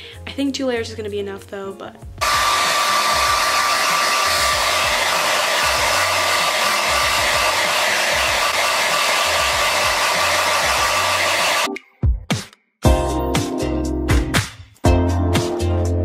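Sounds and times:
hair dryer running: 2.2s - 11.7s.

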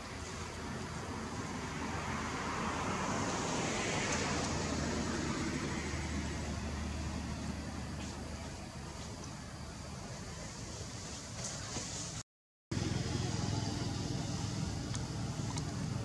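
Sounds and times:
steady low hum: 12.7s - 16.0s.

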